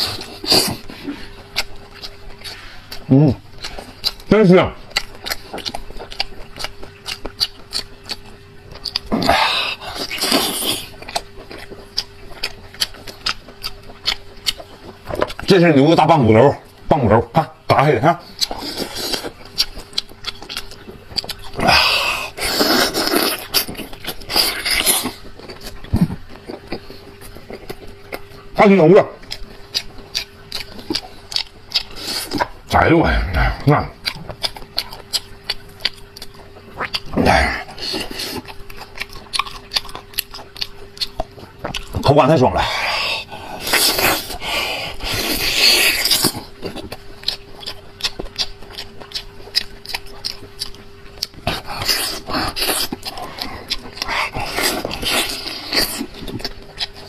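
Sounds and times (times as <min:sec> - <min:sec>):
wet eating sounds: 0:00.0 - 0:57.0
wet sucking and slurping: 0:21.6 - 0:25.2.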